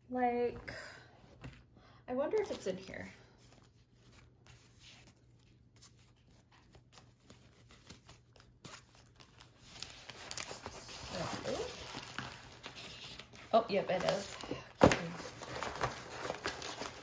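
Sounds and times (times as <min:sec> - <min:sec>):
rolled canvas and paper rustling: 0:02.4 - 0:17.0.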